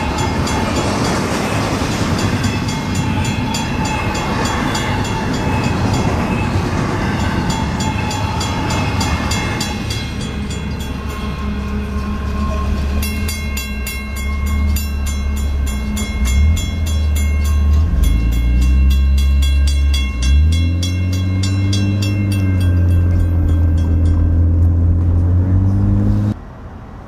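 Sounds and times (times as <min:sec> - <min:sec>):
crossing bell ringing: 0:00.0 - 0:25.7
freight train rumbling past: 0:00.0 - 0:27.0
engine revving: 0:19.9 - 0:26.4.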